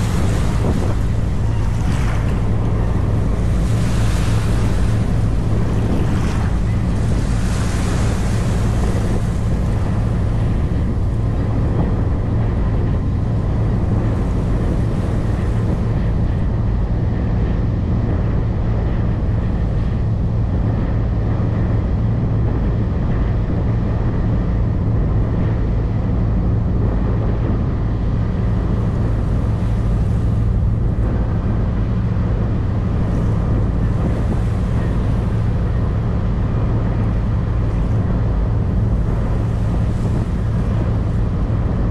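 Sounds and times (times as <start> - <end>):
water rushing past: 0.0 - 13.4
boat engine droning: 0.0 - 41.9
wind buffeting microphone: 0.0 - 41.9.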